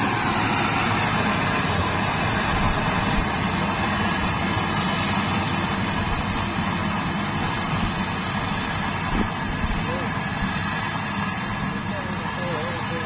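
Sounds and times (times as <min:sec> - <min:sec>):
combine harvester engine drone: 0:00.0 - 0:13.0.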